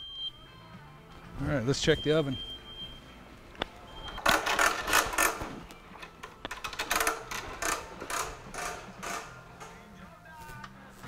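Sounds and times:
air hose reel ratchet clicking: 4.1s - 10.0s.

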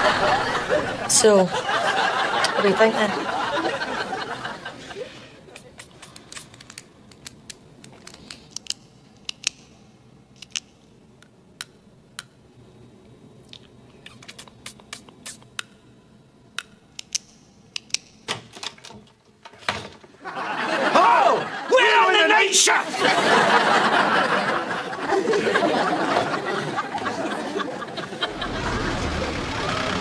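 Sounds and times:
sharp clicks and ticks: 5.6s - 9.8s, 10.4s - 12.4s, 16.6s - 18.2s.

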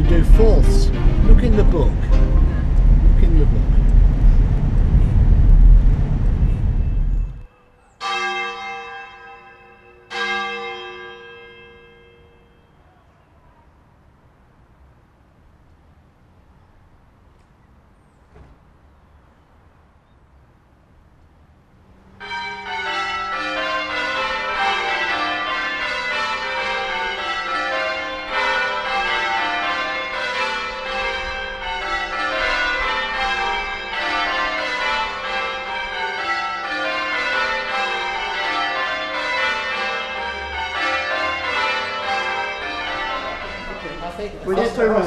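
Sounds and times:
church bells change ringing: 0.0s - 3.4s, 7.2s - 13.4s, 22.2s - 45.0s.

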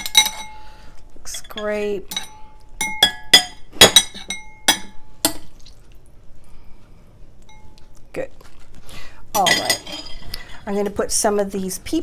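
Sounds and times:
metal tongs clinking on bowls: 0.0s - 0.6s, 1.3s - 5.5s, 9.4s - 10.5s.

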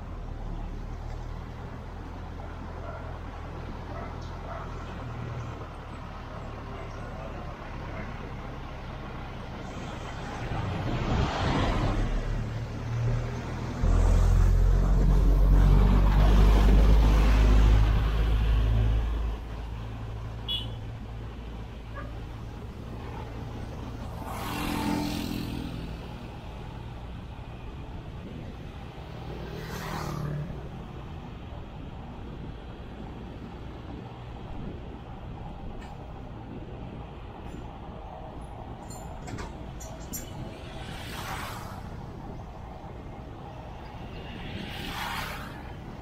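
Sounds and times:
road traffic: 0.0s - 46.0s
vehicles passing: 0.0s - 46.0s.

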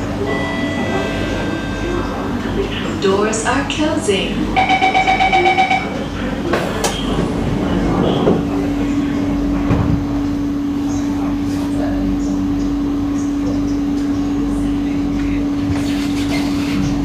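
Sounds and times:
train rumble: 0.0s - 17.0s
fast even door warning beeping: 4.6s - 6.0s.

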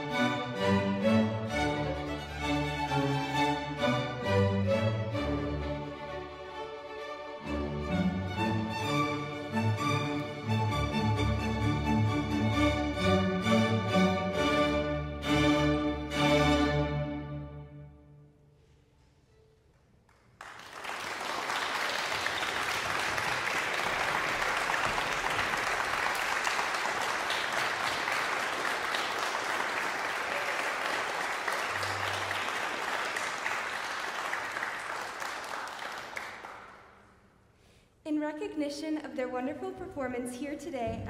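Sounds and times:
audience applauding: 20.1s - 37.2s.

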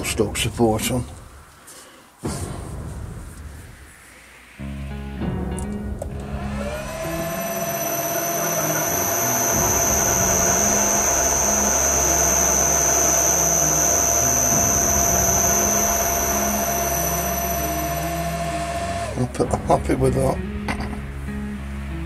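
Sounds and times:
metal lathe whining: 6.2s - 19.5s.

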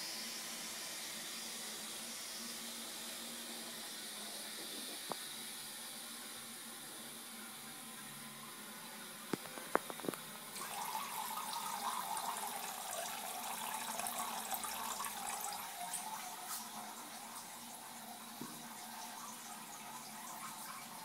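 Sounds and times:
cat urinating into toilet water: 9.4s - 21.0s.

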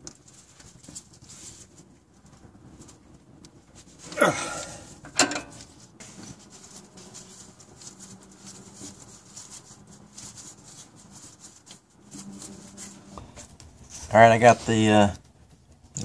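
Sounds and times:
towel rustling: 0.0s - 15.2s
wrench clanking on metal: 5.1s - 5.6s.

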